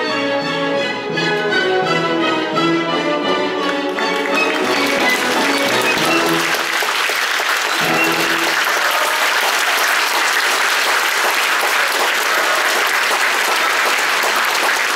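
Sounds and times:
orchestra playing: 0.0s - 14.9s
audience applauding: 3.6s - 14.9s.

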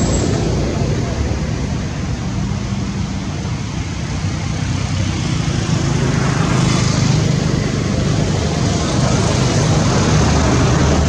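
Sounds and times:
low motor drone: 0.0s - 11.0s.

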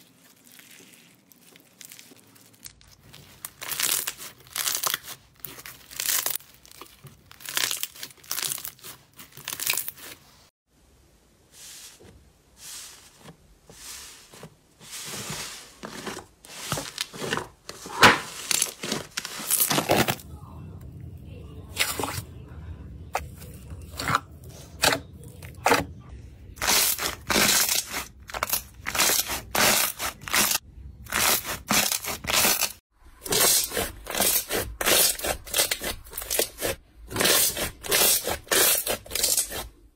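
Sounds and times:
slime crackling squishes: 0.0s - 10.4s
low hum: 20.0s - 26.6s.

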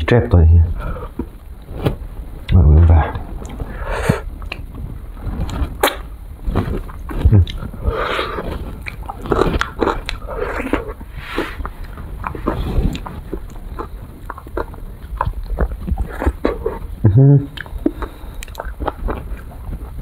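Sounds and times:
biting and chewing: 5.3s - 20.0s
wet lip smacking: 17.5s - 19.6s.

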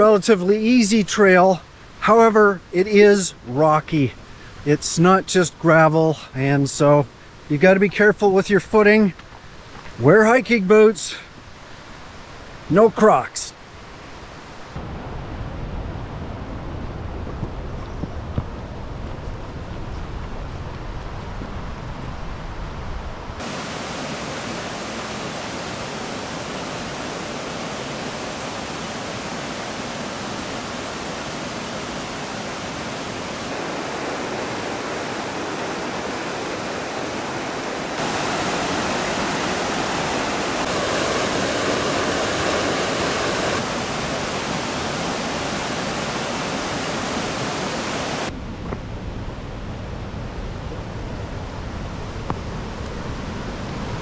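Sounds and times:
waterfall rushing: 23.4s - 48.3s.

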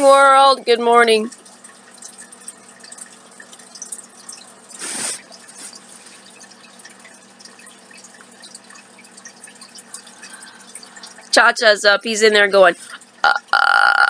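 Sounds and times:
short breathy hiss: 4.8s - 5.2s.

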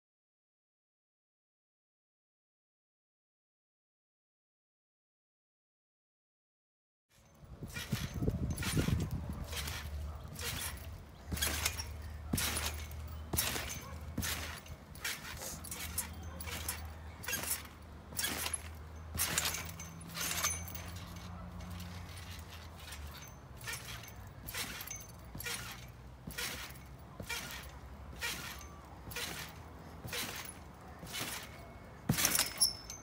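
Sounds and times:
trampoline squeak and thud: 7.2s - 33.0s.

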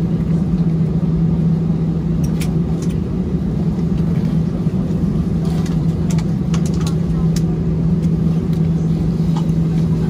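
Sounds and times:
airliner cabin droning hum: 0.0s - 10.0s.

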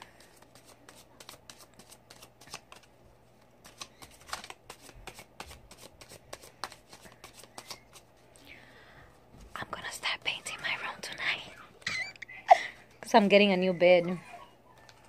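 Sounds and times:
cards being shuffled: 0.0s - 8.2s.

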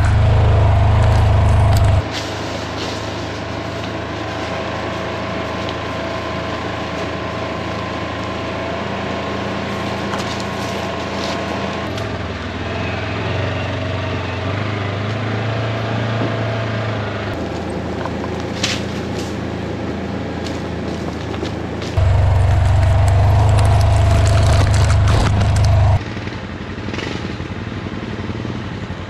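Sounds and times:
off-road vehicle engine running: 0.0s - 29.0s.

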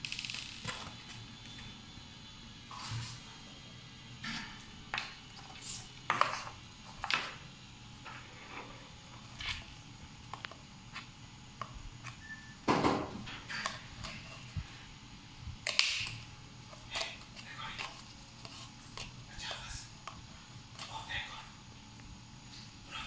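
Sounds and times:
paper cups crinkling: 15.6s - 21.4s.

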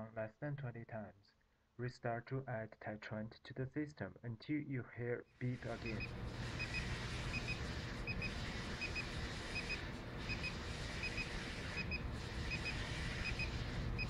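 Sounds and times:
steady low hum: 5.4s - 14.0s.

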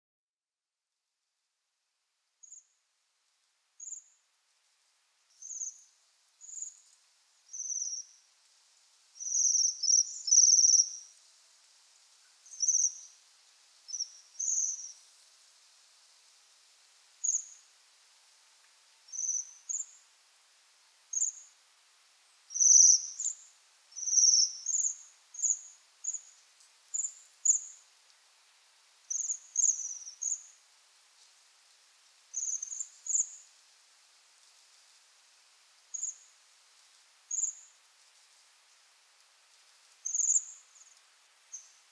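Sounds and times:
faint steady hiss: 0.7s - 41.9s.

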